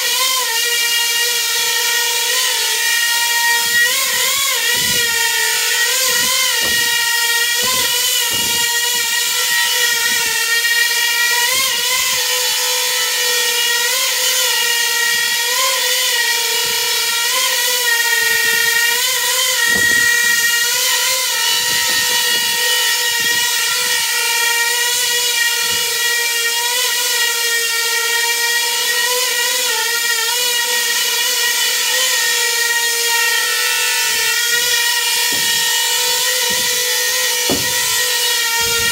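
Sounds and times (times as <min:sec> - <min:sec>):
drone propellers whining: 0:02.9 - 0:11.9, 0:18.0 - 0:25.9, 0:33.4 - 0:38.9.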